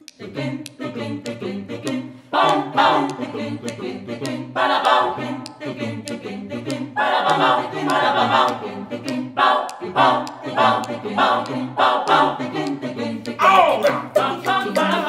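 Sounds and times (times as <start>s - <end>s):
choir singing a cappella: 0.0s - 15.0s.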